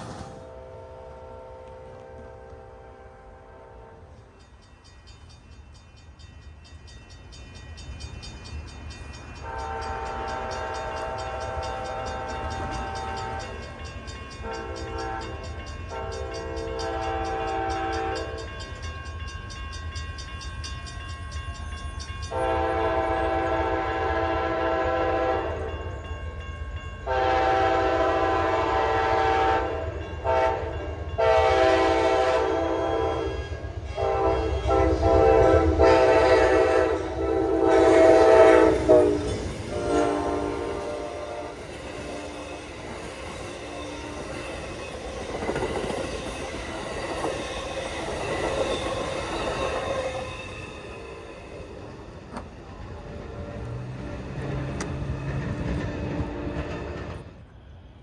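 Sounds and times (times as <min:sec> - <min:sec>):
locomotive air horn blasts: 0:00.0 - 0:04.1, 0:09.4 - 0:13.6, 0:14.4 - 0:18.5, 0:22.3 - 0:25.7, 0:27.1 - 0:42.3
low rumble of train: 0:00.0 - 0:58.0.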